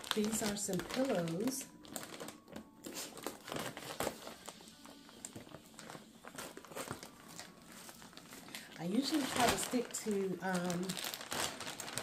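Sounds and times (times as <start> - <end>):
scissors cutting plastic: 0.0 - 8.2
plastic packaging crinkling: 0.0 - 12.0.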